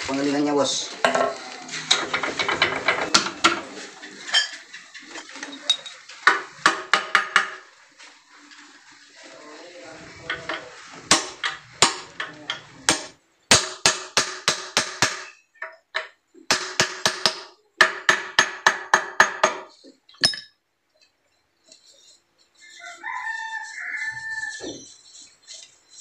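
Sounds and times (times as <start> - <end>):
hammer striking metal: 10.2 - 15.3
rooster crowing: 22.6 - 24.8.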